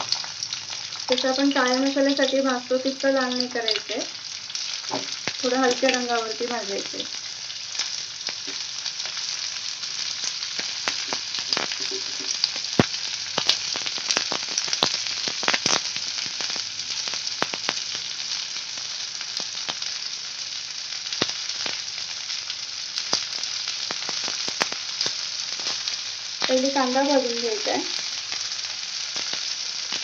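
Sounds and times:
onions sizzling in oil: 0.0 - 30.0
crackling pops: 3.3 - 7.1, 7.8 - 9.2, 10.1 - 19.9, 21.1 - 21.9, 23.0 - 26.8, 27.6 - 30.0.

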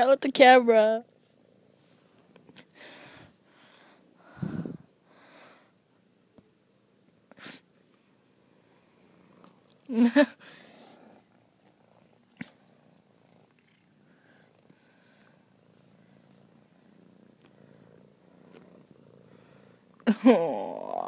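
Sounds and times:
cat purring: 8.3 - 21.0.

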